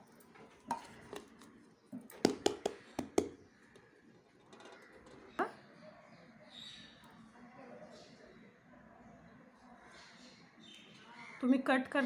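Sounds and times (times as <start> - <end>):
metal plate and pot knocking: 2.2 - 5.4.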